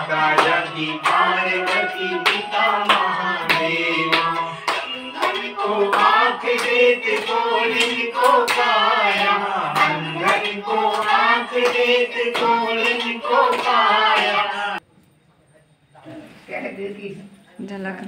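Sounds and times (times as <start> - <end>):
hands clapping in time: 0.0 - 14.5
group singing a hymn: 0.0 - 14.8.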